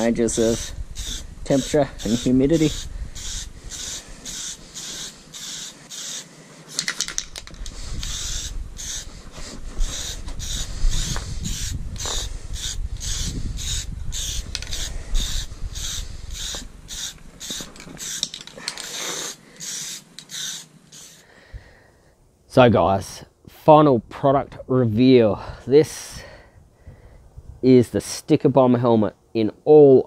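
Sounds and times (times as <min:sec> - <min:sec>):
aerosol can spraying: 0:00.5 - 0:07.0, 0:07.6 - 0:21.2.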